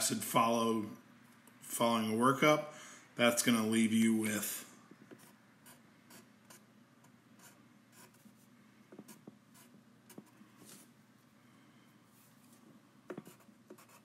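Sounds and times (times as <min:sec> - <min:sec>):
pen scratching on paper: 0:05.1 - 0:06.7, 0:07.4 - 0:10.8, 0:13.1 - 0:14.0.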